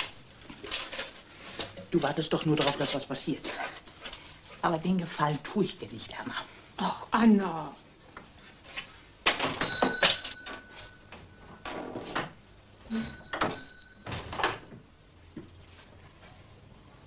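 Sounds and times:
door bell ringing: 0:09.6 - 0:11.6, 0:12.9 - 0:14.5.

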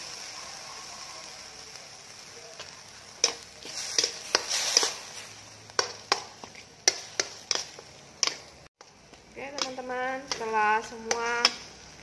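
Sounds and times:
meat sizzling in a wok: 0:00.0 - 0:12.0
metal spatula scraping pan: 0:03.2 - 0:08.5.

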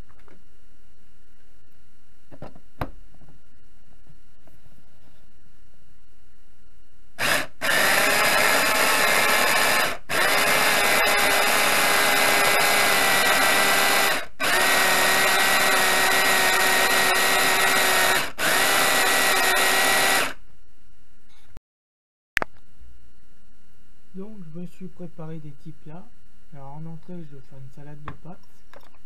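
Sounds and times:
food chopper motor whine: 0:07.2 - 0:20.4.

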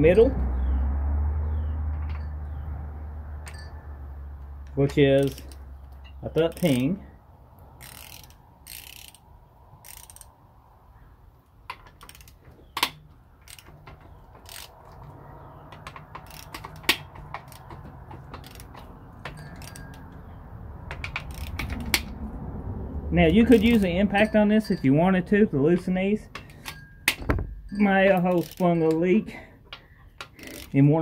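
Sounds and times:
sharp metal clicks: 0:04.6 - 0:07.0, 0:07.8 - 0:10.4, 0:11.4 - 0:22.2, 0:25.7 - 0:31.0
socket ratchet clicking: 0:05.2 - 0:07.0, 0:07.8 - 0:10.4, 0:11.7 - 0:20.2, 0:20.8 - 0:22.2, 0:28.1 - 0:29.0, 0:30.2 - 0:30.8.

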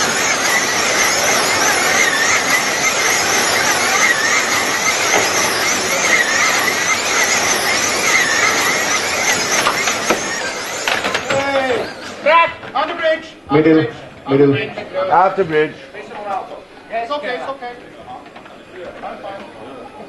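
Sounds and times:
slot car motors whining: 0:00.0 - 0:15.4.

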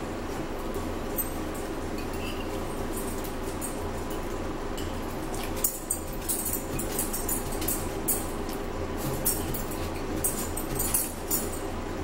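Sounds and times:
background hum: 0:00.0 - 0:12.0
fork scraping a plate: 0:02.0 - 0:02.6.

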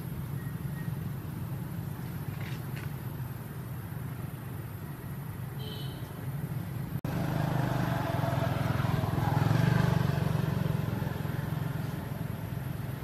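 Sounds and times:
motor vehicle engine running: 0:06.4 - 0:13.0.

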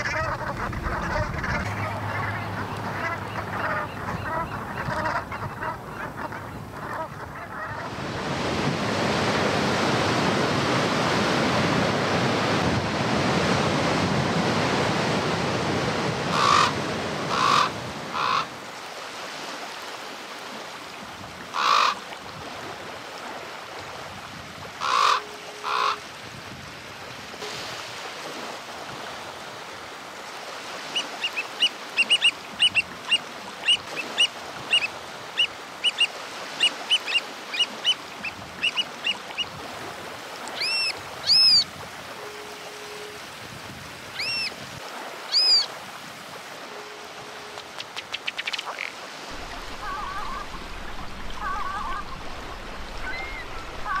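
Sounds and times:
raven croaking: 0:00.0 - 0:04.0
heavy surf breaking: 0:00.0 - 0:05.9, 0:07.8 - 0:18.2, 0:49.0 - 0:54.0
oystercatchers piping whistles: 0:40.6 - 0:41.6, 0:44.2 - 0:44.5, 0:45.3 - 0:45.7.

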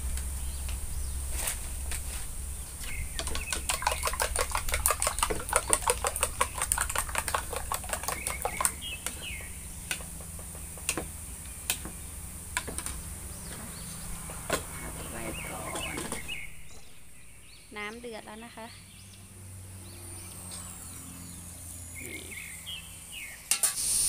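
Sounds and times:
metal spoon beating eggs in bowl: 0:02.8 - 0:11.0.

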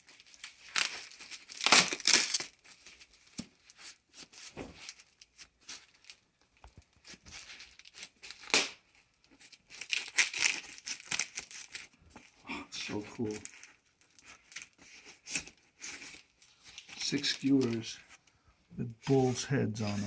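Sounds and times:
foam wrap and tape tearing: 0:00.0 - 0:06.2, 0:07.0 - 0:17.9
sharp tape rip: 0:01.5 - 0:02.5, 0:08.3 - 0:08.8.

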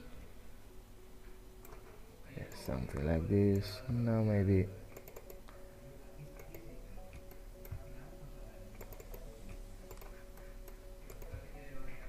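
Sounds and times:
steady low hum: 0:00.0 - 0:12.0
computer mouse and keyboard clicks: 0:04.9 - 0:05.6, 0:06.3 - 0:07.8, 0:08.7 - 0:11.5.

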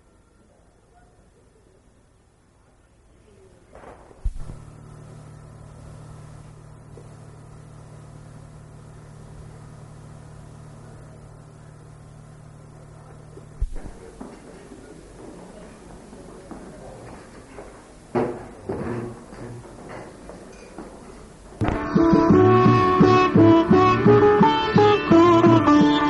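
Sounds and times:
low hum: 0:03.8 - 0:14.1.

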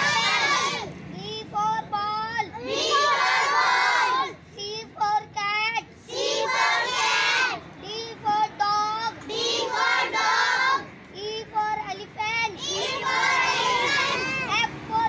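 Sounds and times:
children chanting in unison: 0:00.0 - 0:00.9, 0:02.5 - 0:04.4, 0:06.1 - 0:07.6, 0:09.3 - 0:10.9, 0:12.6 - 0:15.0
boy chanting a rhyme: 0:00.0 - 0:07.2, 0:07.8 - 0:15.0.

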